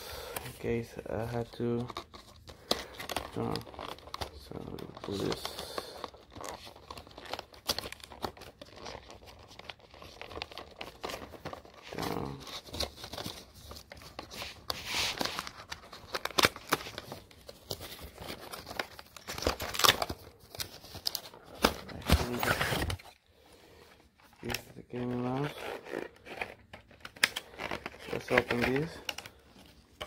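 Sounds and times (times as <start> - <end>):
cardboard packaging crinkling and tearing: 0.2 - 30.0.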